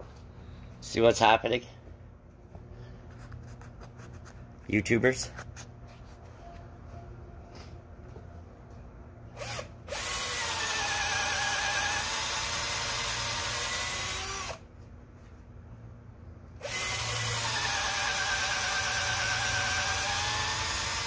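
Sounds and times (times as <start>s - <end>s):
cordless drill boring into wood: 9.4s - 14.6s, 16.6s - 21.0s.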